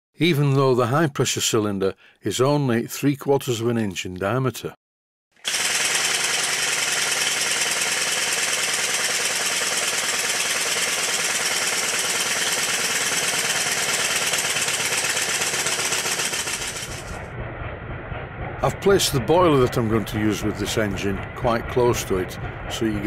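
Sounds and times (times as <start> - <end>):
model steam engine clattering: 5.5 - 17.2, 18.6 - 23.0.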